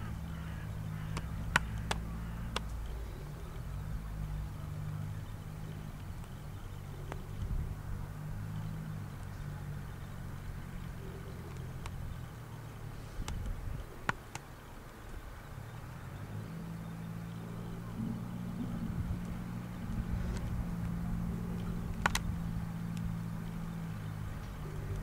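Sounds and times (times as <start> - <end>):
engine idling hum: 0.0 - 25.0
sharp clicks: 0.4 - 3.7, 13.2 - 15.9, 18.0 - 25.0.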